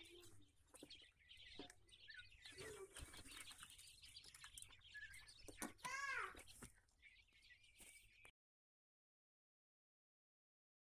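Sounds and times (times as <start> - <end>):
chicks peeping: 0.0 - 8.3.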